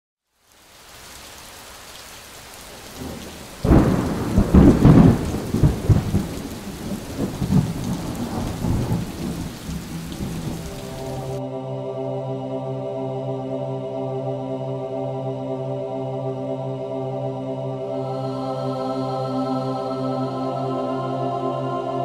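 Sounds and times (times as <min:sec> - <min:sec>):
steady rain: 0:00.2 - 0:11.4
thunder rumbling: 0:02.7 - 0:11.4.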